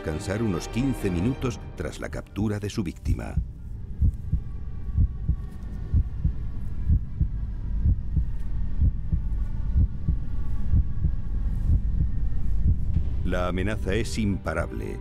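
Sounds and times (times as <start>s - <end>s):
faint steady drone: 2.8s - 15.0s
heartbeat thumps: 3.1s - 13.3s.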